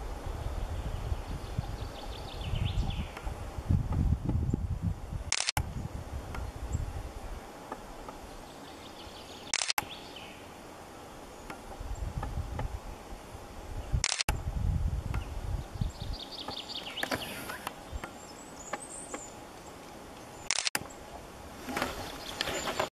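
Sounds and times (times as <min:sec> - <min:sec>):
wind rumble on microphone: 0:00.0 - 0:08.4, 0:11.6 - 0:18.3
songbirds singing: 0:00.2 - 0:03.6, 0:04.2 - 0:22.9.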